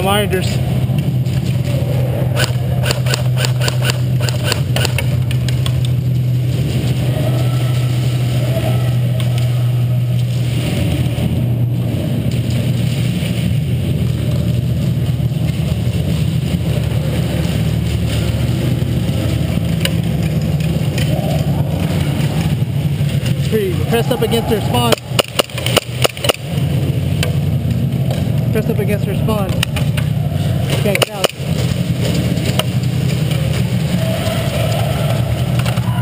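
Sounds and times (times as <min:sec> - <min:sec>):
steady low hum: 0:00.0 - 0:36.0
airsoft gunfire snaps: 0:02.4 - 0:05.1, 0:24.9 - 0:26.5.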